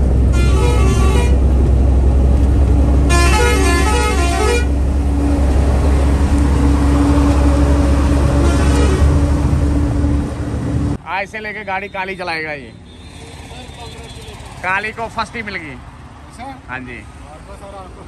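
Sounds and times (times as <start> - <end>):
diesel truck rumble: 0.0 - 16.0
musical truck horn tune: 0.3 - 1.5, 3.1 - 4.8, 8.2 - 9.6.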